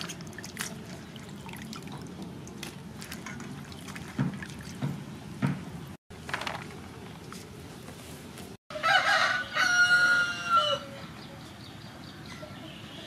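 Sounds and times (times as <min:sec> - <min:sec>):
water splashes: 0:00.0 - 0:05.0
water sloshing and dripping: 0:00.0 - 0:05.8.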